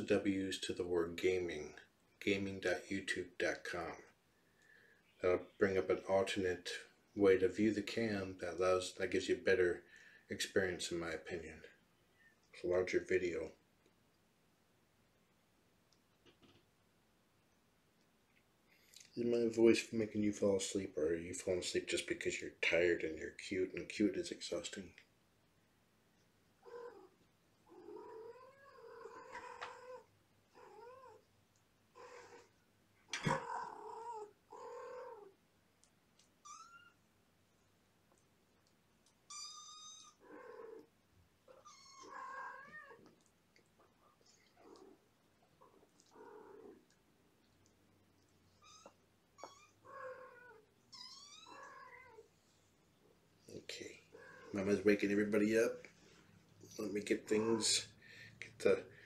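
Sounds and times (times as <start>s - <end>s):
cat meowing: 41.5s - 43.1s, 48.6s - 52.2s.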